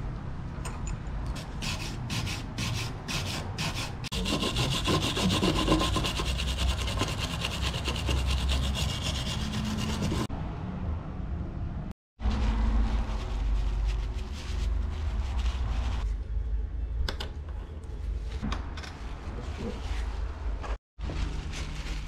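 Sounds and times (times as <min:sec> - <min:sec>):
hand scraping metal: 0:01.4 - 0:10.3.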